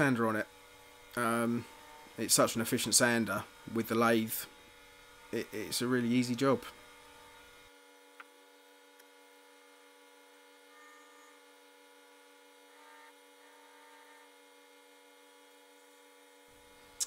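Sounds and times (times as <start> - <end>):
faint hum: 0.0 - 17.0.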